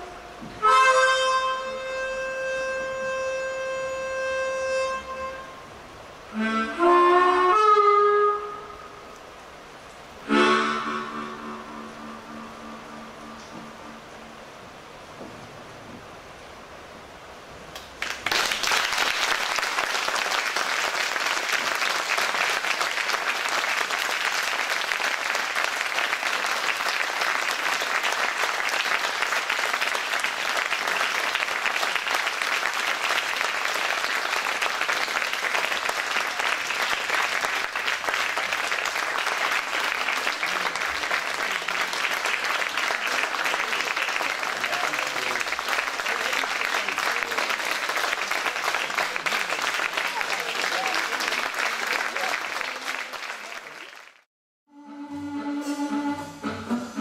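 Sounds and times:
audience applauding: 17.8 - 54.3.

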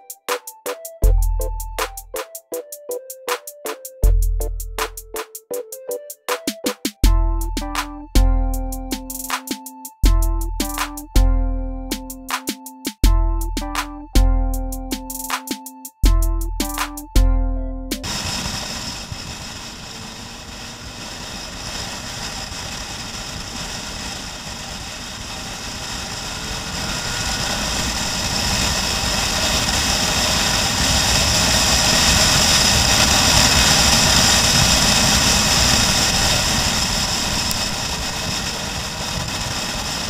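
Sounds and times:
wind and road noise: 18.0 - 40.0.

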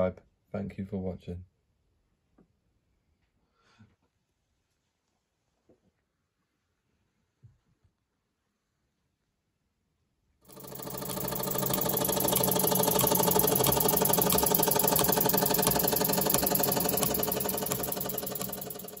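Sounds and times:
model steam engine beating: 10.5 - 19.0.

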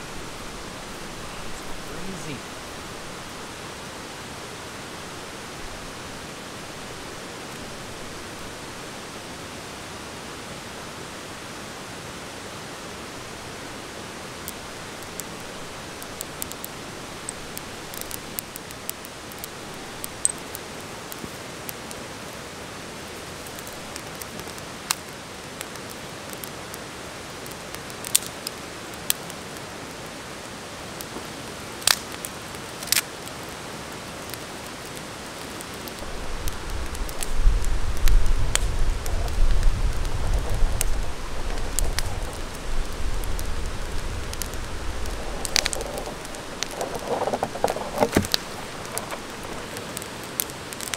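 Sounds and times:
twigs crackling in fire: 0.0 - 9.1, 12.1 - 50.9
waterfall rushing: 0.0 - 18.4.

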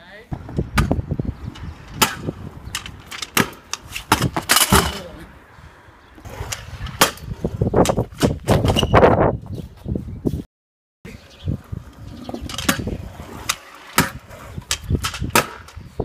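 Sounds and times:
wheels rolling over paving: 6.2 - 7.8, 11.3 - 16.0.

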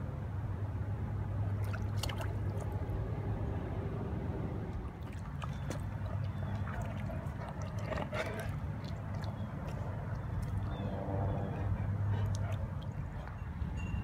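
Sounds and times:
low motor hum: 0.0 - 14.0.

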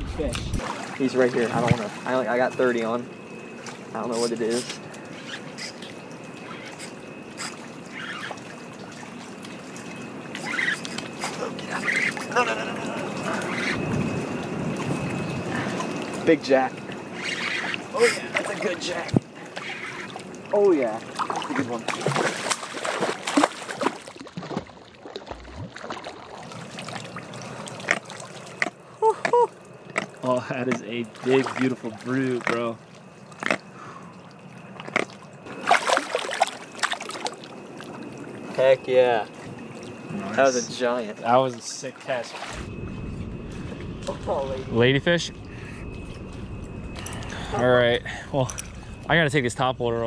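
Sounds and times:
small waves lapping: 0.6 - 42.7
fish thrashing in shallow water: 5.2 - 16.2, 16.8 - 38.6.

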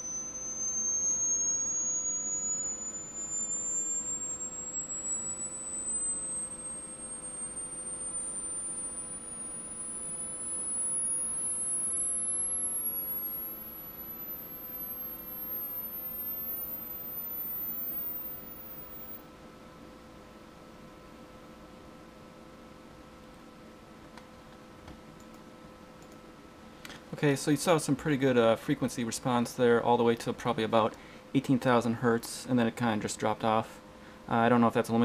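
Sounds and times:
rising sine wave test tone: 0.0 - 23.8.

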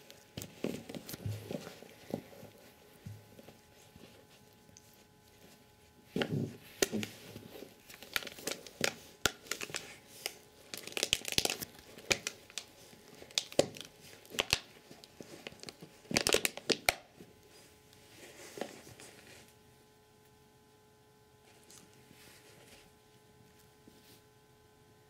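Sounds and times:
fabric rustling and crinkling: 0.0 - 19.6.

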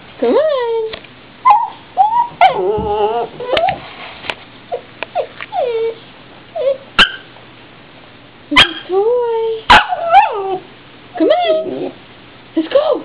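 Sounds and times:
dog whining: 1.4 - 3.8, 4.7 - 7.3, 9.7 - 12.0.

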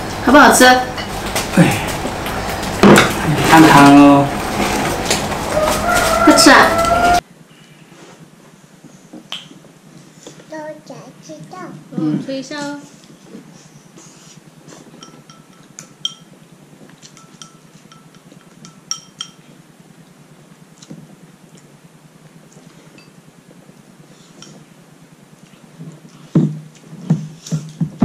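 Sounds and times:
utensils clinking against bowls: 14.8 - 16.4, 17.0 - 19.5.

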